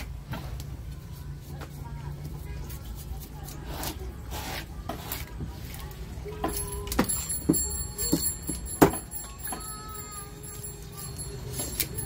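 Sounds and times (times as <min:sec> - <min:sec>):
steady ringing tone: 0:06.4 - 0:12.0.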